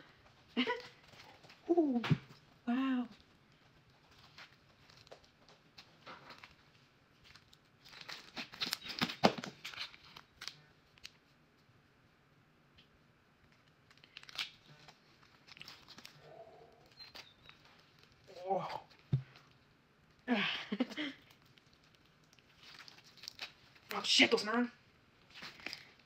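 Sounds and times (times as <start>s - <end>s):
plastic bag crinkle: 5.8s - 11.2s, 13.5s - 19.6s, 21.0s - 24.2s, 25.2s - 26.0s.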